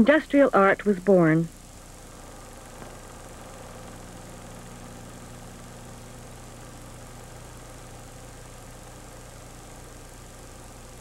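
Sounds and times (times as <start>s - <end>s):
low machine-like hum: 0.0s - 11.0s.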